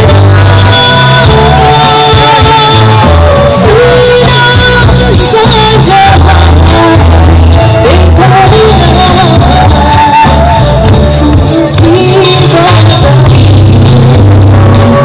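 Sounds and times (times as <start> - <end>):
pop music with heavy bass: 0.0 - 15.0
woman singing: 0.0 - 15.0.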